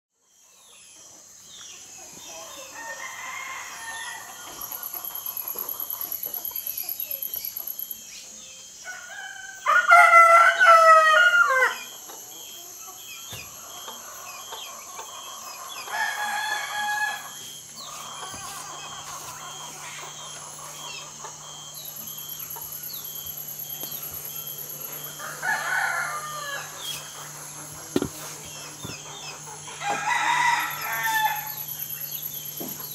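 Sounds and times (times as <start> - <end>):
steady high-pitched hum: 0.3 - 9.8, 10.4 - 32.9
rooster crowing: 2.4 - 5.5, 8.8 - 12.0, 13.7 - 27.7, 29.0 - 32.9
pulsing high trill: 16.2 - 27.8, 28.6 - 32.9.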